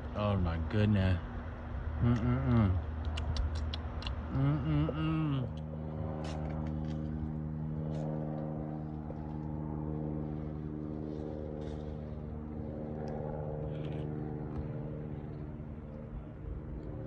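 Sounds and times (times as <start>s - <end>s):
motor humming steadily: 0.0s - 17.0s.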